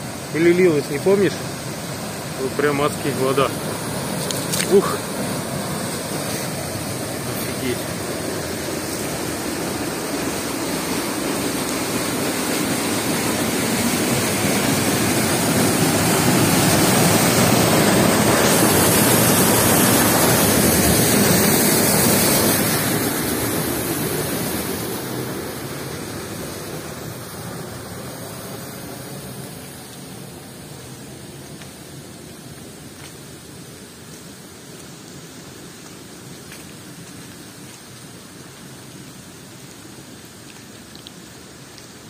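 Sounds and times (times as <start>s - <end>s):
water gushing from drain pipe: 0.0s - 26.7s.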